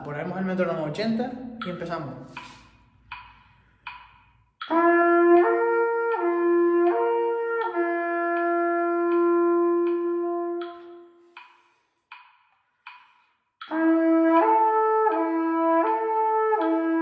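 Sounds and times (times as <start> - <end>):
metronome clicking: 0.6 - 5.5, 6.1 - 13.9
trumpet slurring notes: 4.6 - 11.3.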